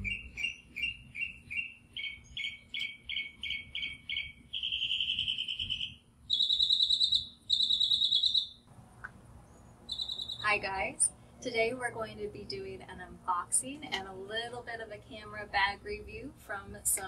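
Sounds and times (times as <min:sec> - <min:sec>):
high animal chirping and trills: 0:00.0 - 0:08.7, 0:09.5 - 0:10.6.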